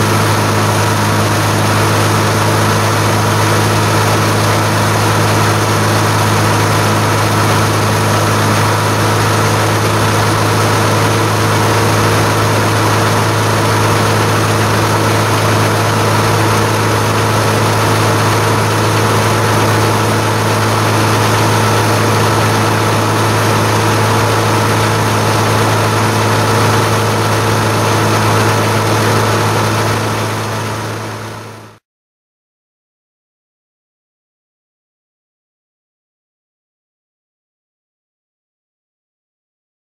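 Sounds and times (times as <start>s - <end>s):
combine harvester running: 0.0s - 31.8s
grain rushing from auger: 0.0s - 31.8s.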